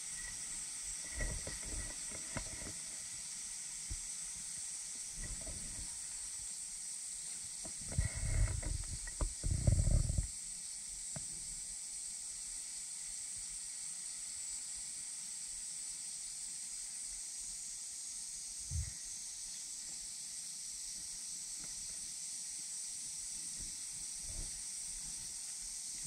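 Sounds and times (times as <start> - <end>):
high-pitched hiss: 0.0 - 26.0.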